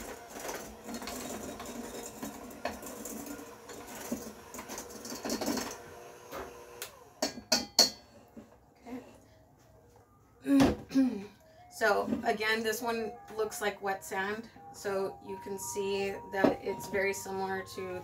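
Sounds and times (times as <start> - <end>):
electric hand mixer running: 0.0 - 7.3.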